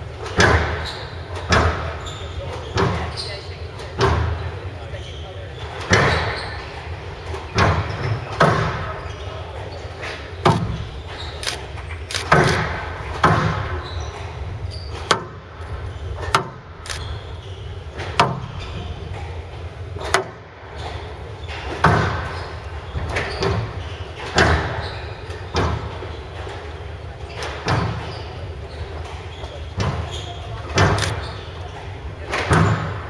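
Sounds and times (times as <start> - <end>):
squash ball hitting rackets and walls: 0.2 - 3.1, 3.9 - 4.4, 5.8 - 9.0, 10.0 - 11.2, 12.2 - 16.8, 17.8 - 19.0, 20.0 - 26.7, 27.4 - 28.5, 29.1 - 31.3, 32.2 - 33.0.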